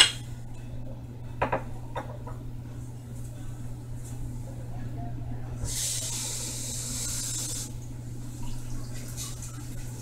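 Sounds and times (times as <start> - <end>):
water running from tap: 5.6 - 10.0.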